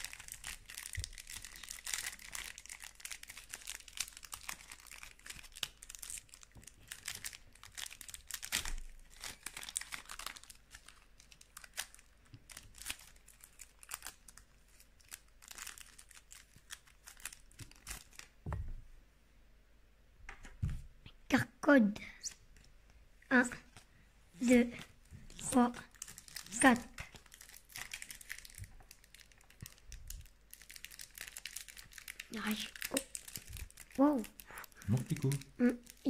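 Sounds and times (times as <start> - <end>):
foil wrapper crinkling and tearing: 0.0 - 18.4, 25.3 - 36.0.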